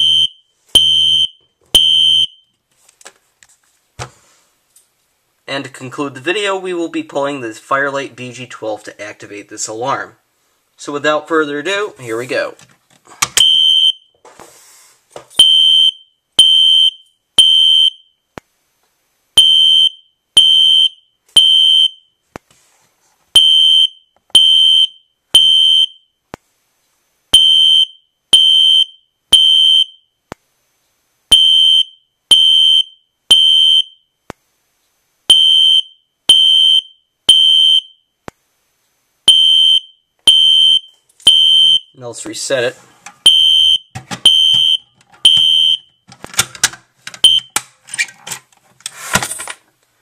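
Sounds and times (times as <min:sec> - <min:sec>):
fire alarm horn blasts: 0:31.3 - 0:34.0, 0:35.3 - 0:38.0, 0:39.3 - 0:42.0, 0:43.3 - 0:46.0.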